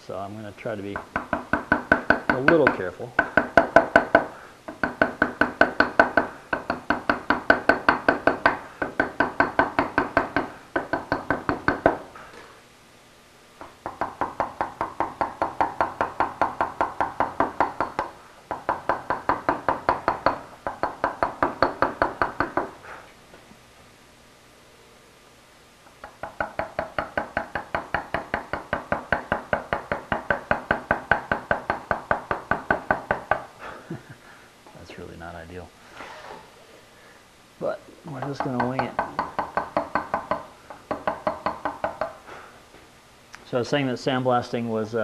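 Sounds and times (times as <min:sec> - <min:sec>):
mallet tapping chisel on stone: 0:01.0 - 0:12.0, 0:13.6 - 0:22.7, 0:26.0 - 0:33.4, 0:38.2 - 0:42.2.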